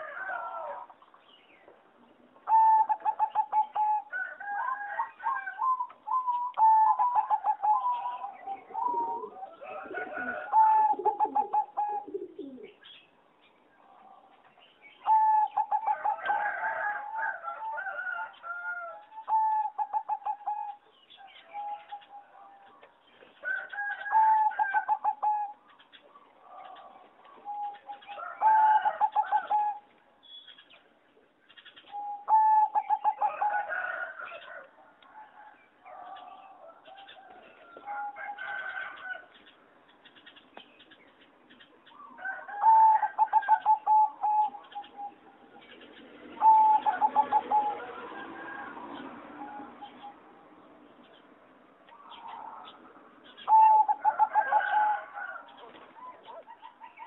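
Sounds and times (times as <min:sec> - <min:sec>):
dove cooing: 0:02.4 - 0:12.9, 0:15.0 - 0:22.8, 0:23.4 - 0:29.9, 0:31.9 - 0:39.2, 0:42.0 - 0:45.6, 0:46.3 - 0:50.2, 0:51.9 - 0:57.0.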